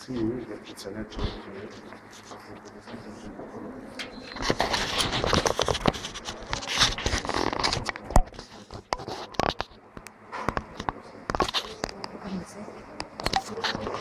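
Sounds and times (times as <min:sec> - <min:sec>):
clothing rubbing on microphone: 0:00.0 - 0:03.3, 0:04.2 - 0:09.8.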